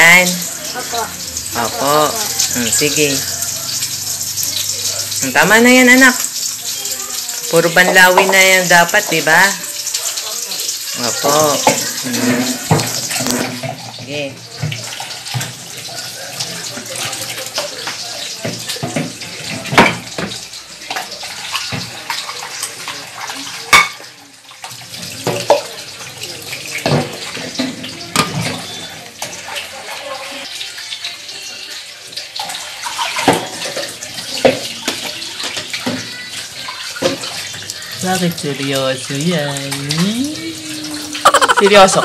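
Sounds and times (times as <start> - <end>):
tap water running into sink: 0.0 - 42.0
dishes clinking against metal basin: 7.5 - 10.2, 11.3 - 15.6, 16.8 - 24.2, 24.9 - 25.8, 26.7 - 30.1, 32.4 - 36.0.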